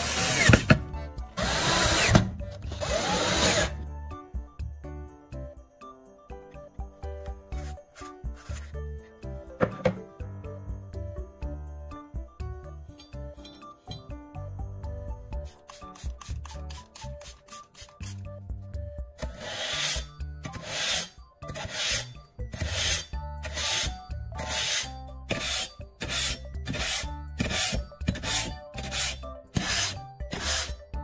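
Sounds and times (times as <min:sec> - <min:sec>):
background music: 0:00.0 - 0:31.0
blade rasping on sharpener: 0:19.2 - 0:30.8.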